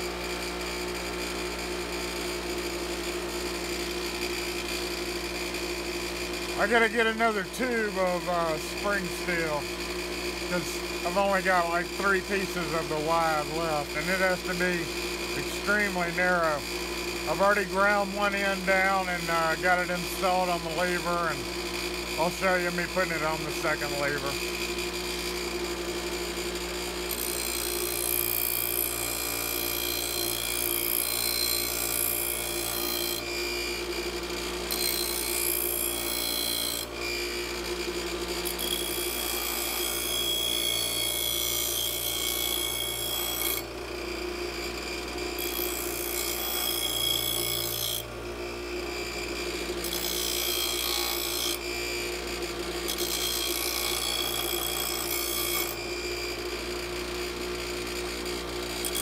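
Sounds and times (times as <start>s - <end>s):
bench grinder motor hum: 0.0s - 59.0s
steel grinding against wheel: 10.4s - 16.7s.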